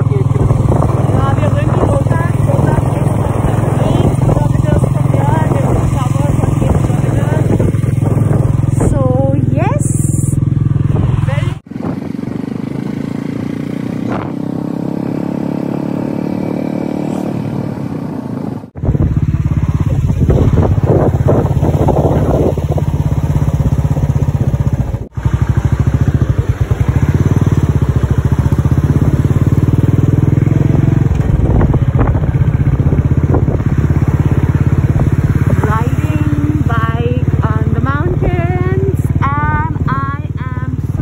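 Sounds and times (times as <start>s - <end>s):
motorcycle engine running: 0.0s - 41.0s.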